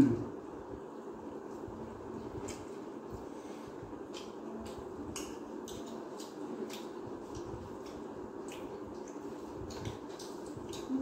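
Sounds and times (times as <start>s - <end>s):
low background hum: 0.0s - 11.0s
wet chewing and lip-smacking: 4.0s - 11.0s.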